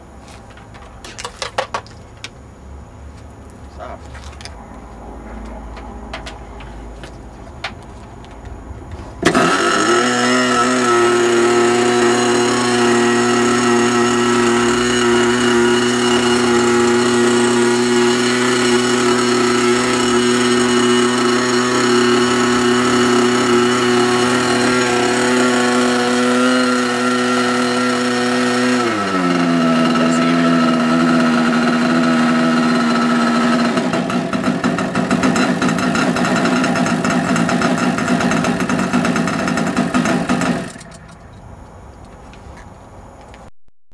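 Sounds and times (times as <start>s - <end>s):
model airplane engine running: 9.3s - 41.0s.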